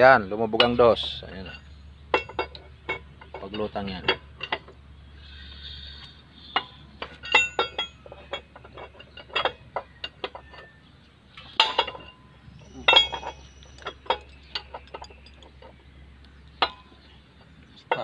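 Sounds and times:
hand tools clinking on metal: 0.0s - 4.8s, 6.4s - 18.0s.

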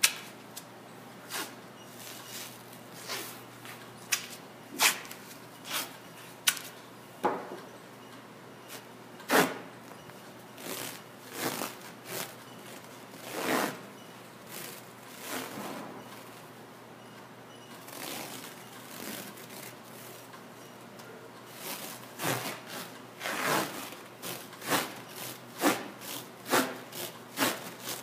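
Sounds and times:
tape ripping and rustling: 10.6s - 13.8s, 21.6s - 28.0s.

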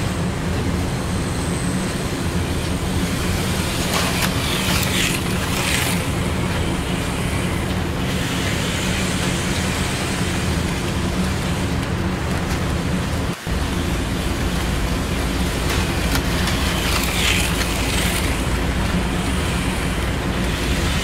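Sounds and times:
small electric motors whirring: 3.2s - 10.6s, 15.7s - 21.0s.

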